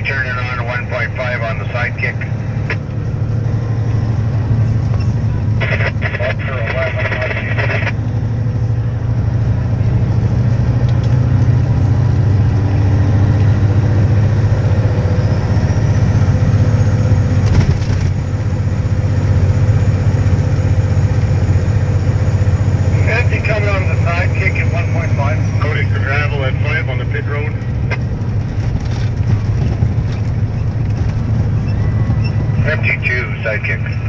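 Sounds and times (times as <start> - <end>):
truck engine drone in cab: 0.0 - 34.0.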